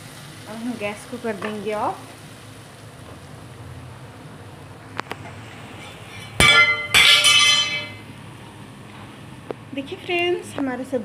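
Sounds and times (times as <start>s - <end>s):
metal cookware clanging: 5.8s - 8.0s.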